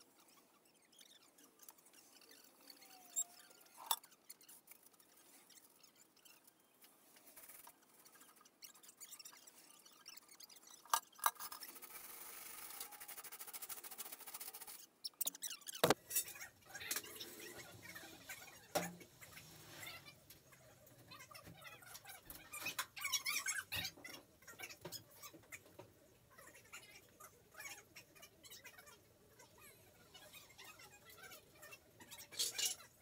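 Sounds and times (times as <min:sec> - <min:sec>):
faint clicks and squeaks: 0:00.0 - 0:33.0.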